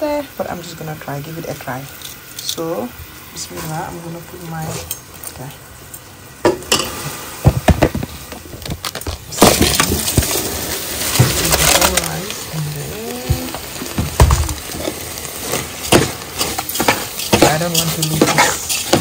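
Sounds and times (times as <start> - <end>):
knocks of stirring: 6.4 - 19.0
hiss of pouring grains: 6.7 - 8.3, 9.3 - 19.0
rice clinking into pot: 8.7 - 19.0.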